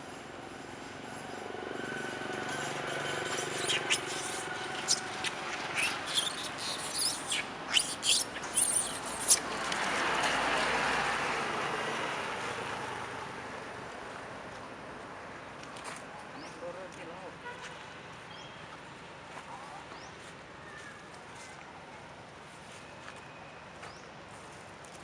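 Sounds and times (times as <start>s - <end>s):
vehicle passing: 1.1s - 13.8s
high chirps and squeaks: 2.5s - 9.6s.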